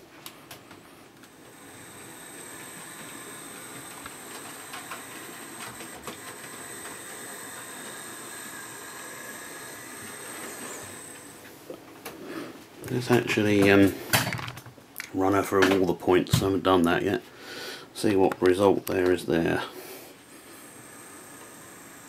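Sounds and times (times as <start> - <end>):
model train motor whirring: 1.2 - 11.7, 20.5 - 22.0.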